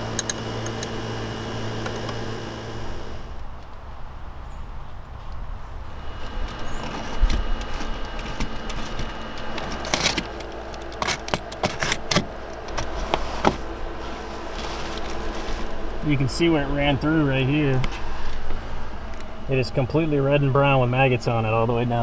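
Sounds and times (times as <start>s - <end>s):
steady low hum: 0.0s - 22.0s
hands and tools clicking and knocking: 6.8s - 13.6s.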